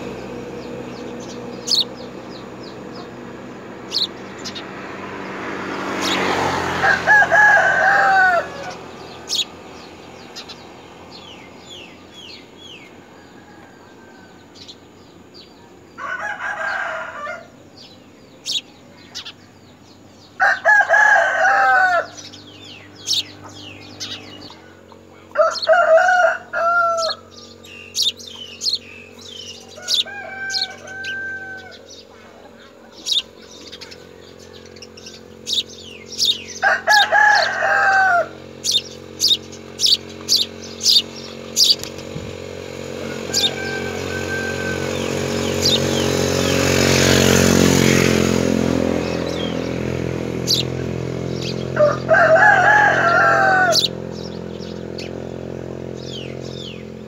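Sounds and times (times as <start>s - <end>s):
sparrow chirps: 0.0s - 16.0s, 17.6s - 20.6s, 21.6s - 25.9s, 26.9s - 57.0s
rooster crowing: 6.0s - 9.4s, 12.7s - 14.9s, 15.9s - 17.6s, 20.3s - 22.4s, 25.3s - 32.5s, 34.0s - 35.6s, 36.2s - 38.8s, 40.3s - 47.6s, 48.2s - 55.1s.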